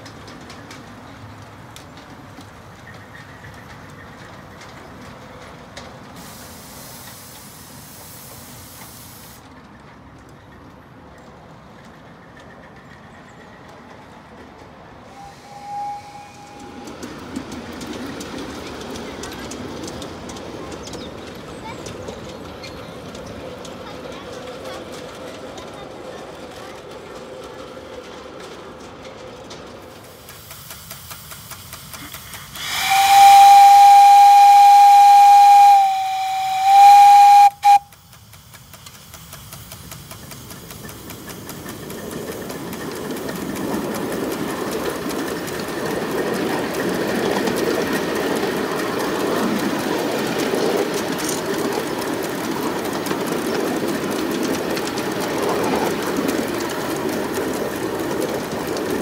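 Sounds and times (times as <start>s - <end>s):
miniature steam train running: 0.0s - 59.0s
steam locomotive whistle blast: 15.0s - 17.0s, 32.6s - 38.0s.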